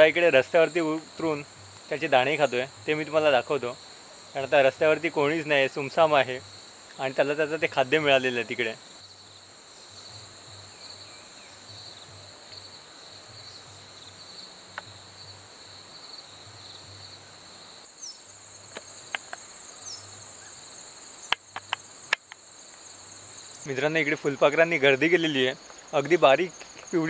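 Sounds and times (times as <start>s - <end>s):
insects trilling: 0.0s - 27.0s
sharp clicks: 21.2s - 22.4s.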